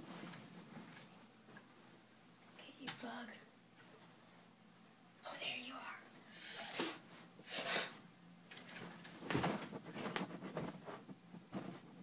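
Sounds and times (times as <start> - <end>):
rustling: 8.6 - 12.0.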